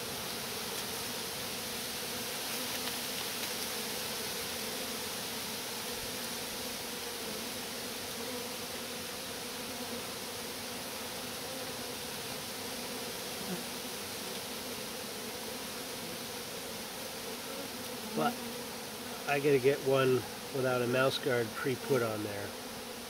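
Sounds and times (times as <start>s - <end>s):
bees buzzing: 0.0s - 23.0s.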